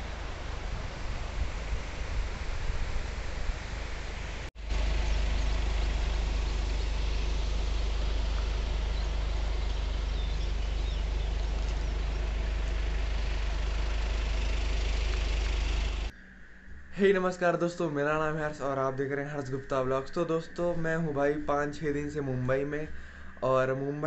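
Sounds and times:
wind buffeting microphone: 0.0 - 14.8.

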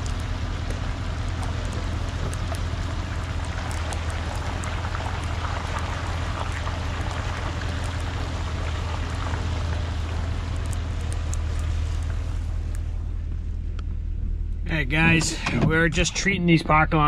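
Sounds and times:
light ticks: 0.0 - 5.4, 10.0 - 12.9
truck engine rumbling: 0.0 - 17.0.

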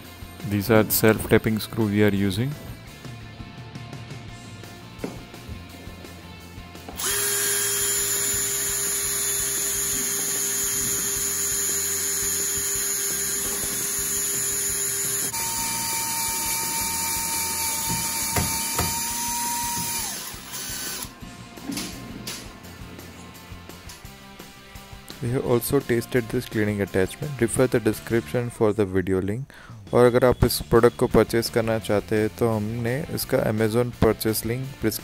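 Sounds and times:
drill driving screw into metal: 7.0 - 21.1.

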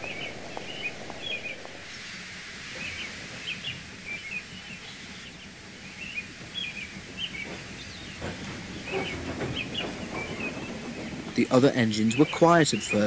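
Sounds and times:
low hum: 0.0 - 4.2
small birds chirping: 0.0 - 13.0.

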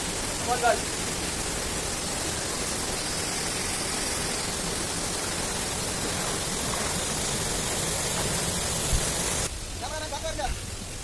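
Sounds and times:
stream and waterfall rushing: 0.0 - 11.0.

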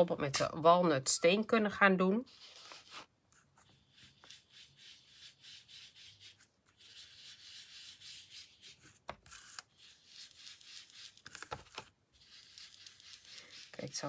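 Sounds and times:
foam tool rubbing on cardstock: 2.3 - 11.5, 12.2 - 14.0.

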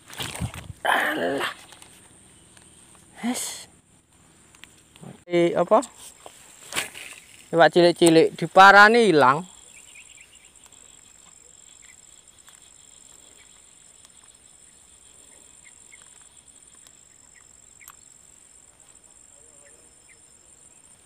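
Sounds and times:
high-pitched insect drone: 7.1 - 21.0
faint chirps: 8.7 - 21.0.

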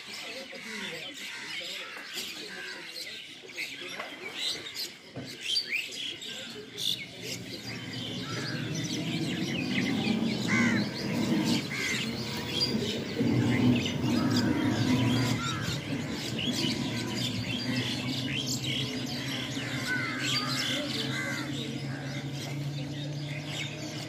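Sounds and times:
birds chirping chorus: 0.0 - 24.0
three-wheeler engine hum: 6.4 - 24.0.

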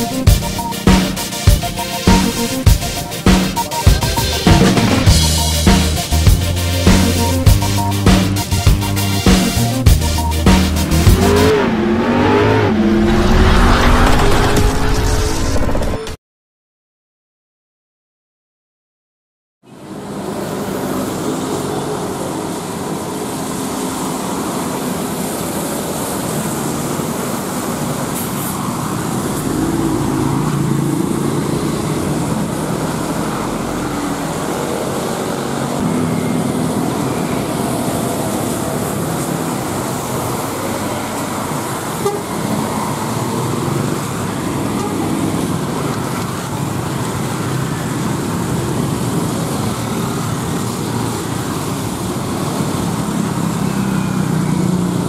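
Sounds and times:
traffic passing: 0.0 - 14.8, 19.7 - 55.0
horn toots: 0.0 - 15.1
tyres hissing on wet asphalt: 19.9 - 35.8.

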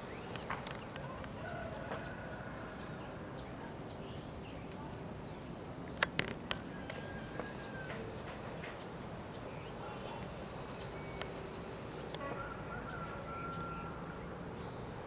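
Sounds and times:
small birds chirping: 0.0 - 15.0
steady background noise: 0.0 - 15.0
distant roosters crowing: 0.4 - 3.5, 6.5 - 15.0.

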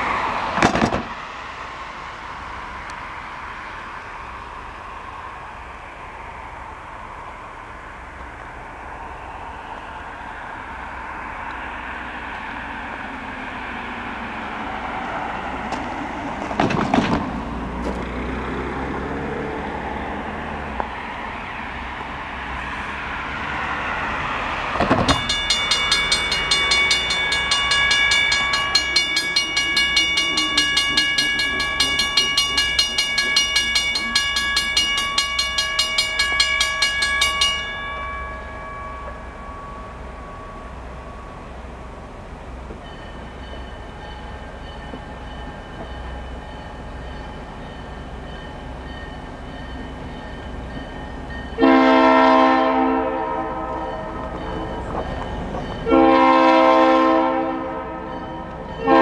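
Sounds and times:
distant diesel train approaching: 0.0 - 59.0
railroad crossing bell ringing: 22.0 - 59.0.

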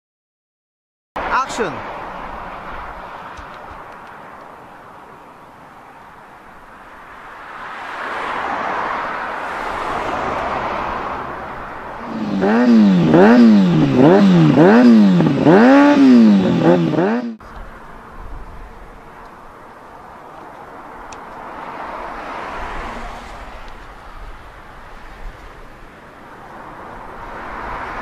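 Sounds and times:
traffic passing: 1.2 - 28.0
motorcycle engine revving: 12.0 - 17.5.

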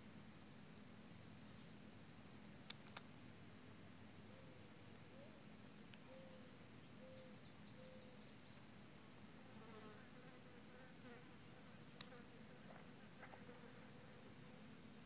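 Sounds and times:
faint wavering hum: 3.2 - 15.0.

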